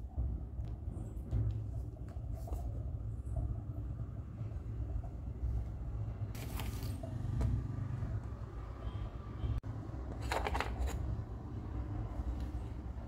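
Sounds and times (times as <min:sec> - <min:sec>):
newspaper rustling: 0:06.4 - 0:07.0.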